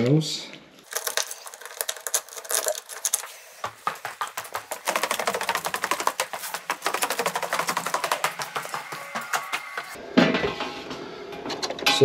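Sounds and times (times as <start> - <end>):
footsteps going down stairs: 0.9 - 10.0.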